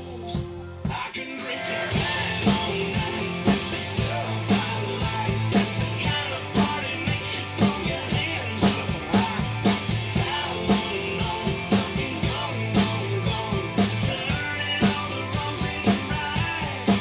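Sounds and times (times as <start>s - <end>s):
drum kit playing: 0.0s - 17.0s
rock-country song with singing: 0.0s - 17.0s.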